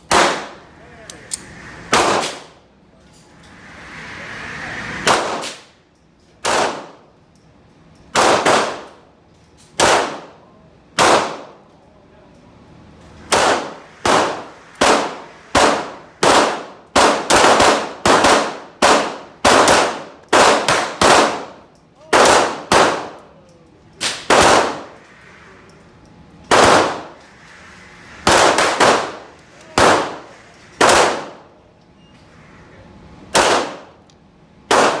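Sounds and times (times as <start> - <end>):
pistol shots echoing indoors: 0.0 - 2.6, 5.0 - 5.7, 6.4 - 7.1, 8.0 - 11.7, 13.2 - 25.4, 26.4 - 31.5, 33.3 - 35.0.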